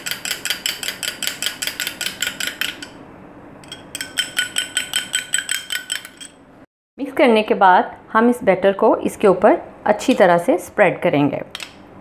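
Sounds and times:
fork beating batter in glass bowl: 0.0s - 3.0s, 3.6s - 6.4s.

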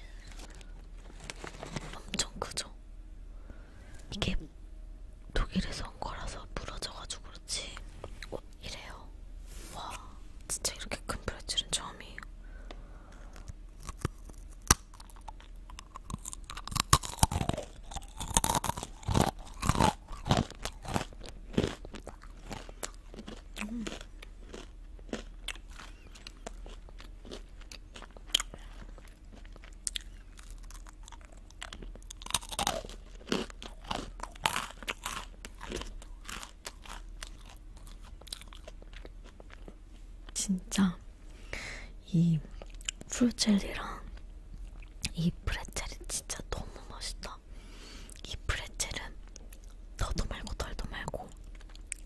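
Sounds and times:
soft chewing: 9.9s - 41.0s, 42.4s - 43.2s, 43.8s - 47.3s, 48.1s - 52.0s
pretzel crunching: 13.4s - 39.7s.

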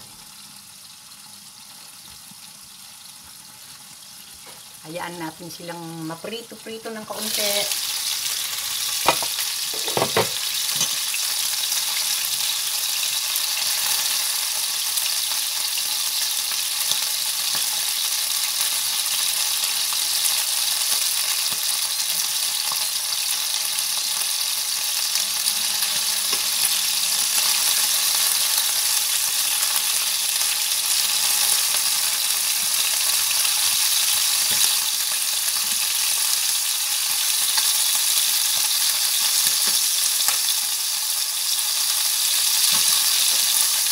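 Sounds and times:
chicken sizzling in hot oil: 0.0s - 43.9s.

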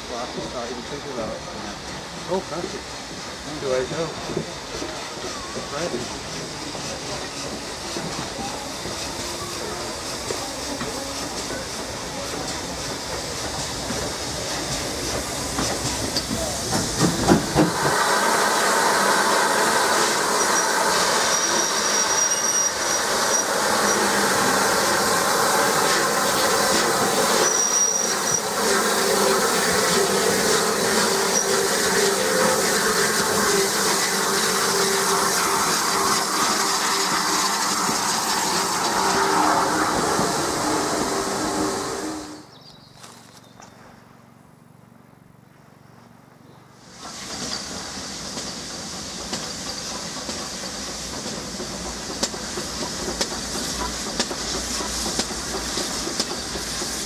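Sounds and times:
steam hissing from cylinders: 0.0s - 42.6s, 46.8s - 57.0s
steam locomotive rumbling: 0.0s - 42.6s, 46.8s - 57.0s
passenger coaches rolling by: 0.0s - 43.3s.

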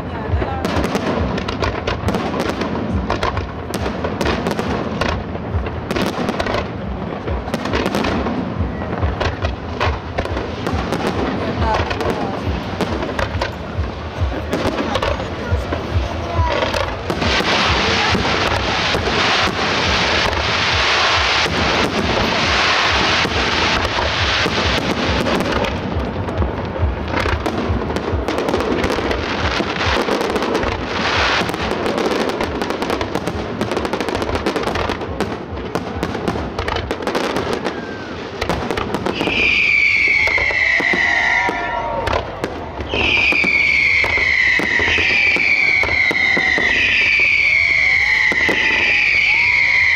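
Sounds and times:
fireworks bursting with sharp bangs: 0.0s - 49.9s
fireworks crackling: 0.0s - 49.9s.

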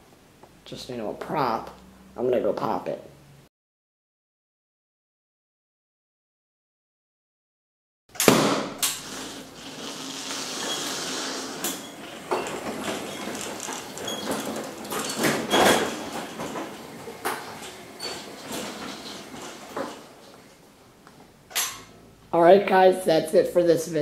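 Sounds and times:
balloon popping: 8.2s - 11.6s
rustling: 8.9s - 20.7s
knocks and clatter: 11.8s - 20.6s.

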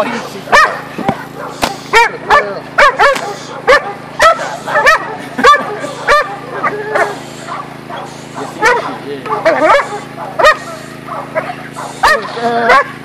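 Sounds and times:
dog barking: 0.1s - 13.0s.

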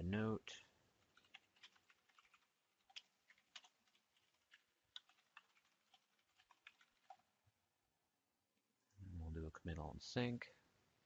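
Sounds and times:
faint keyboard typing: 0.5s - 7.5s.

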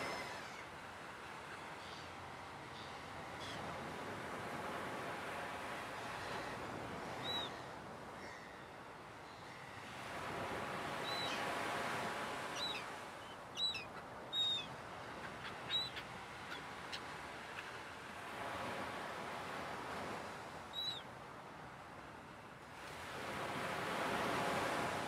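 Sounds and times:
surf washing in: 0.0s - 25.0s
high bird calls: 12.6s - 17.7s.

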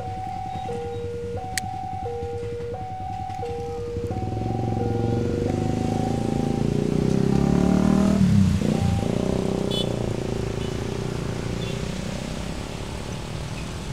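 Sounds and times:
level-crossing alarm tones: 0.0s - 10.7s
motorcycle engines: 0.0s - 13.9s
motorcycle passing close: 3.5s - 13.9s.

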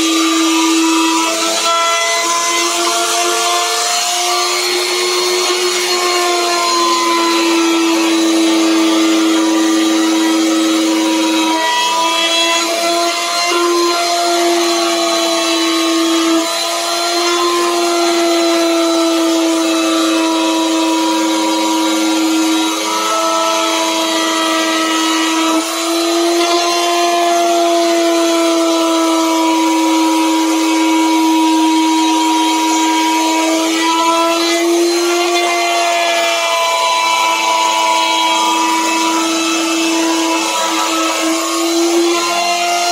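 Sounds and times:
electric router whining: 0.0s - 42.9s.

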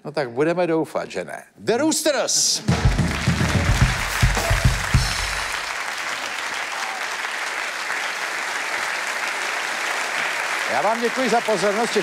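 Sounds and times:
bass and drum band sting: 2.6s - 5.7s
audience applauding: 2.7s - 12.0s.

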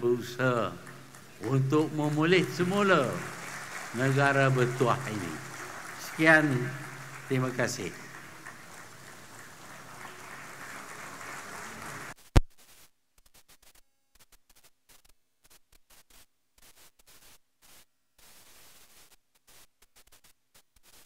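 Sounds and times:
audience applauding: 0.1s - 12.2s
faint crackles: 8.0s - 21.0s.

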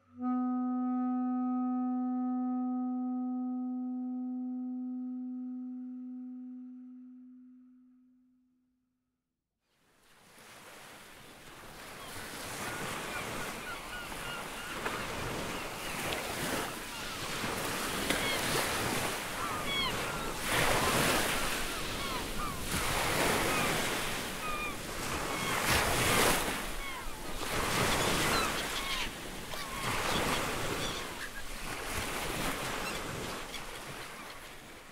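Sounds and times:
ocean surf on shoreline: 10.0s - 34.9s
birds chirping: 26.7s - 31.8s.

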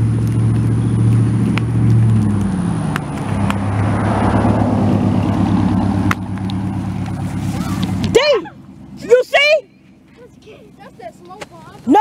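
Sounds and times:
low engine hum: 0.0s - 12.0s
small firework pops: 0.2s - 3.6s.

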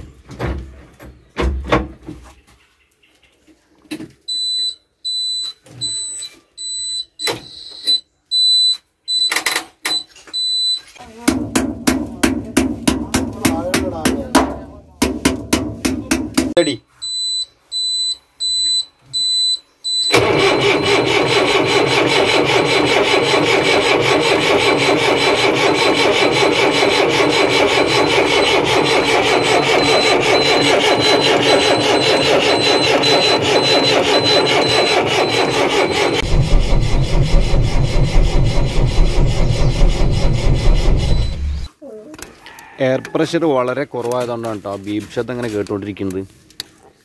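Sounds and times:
diesel engine starting and running: 20.0s - 41.7s
deep exhaust close up: 20.1s - 41.7s
warning beeper short beeps: 29.3s - 36.2s.

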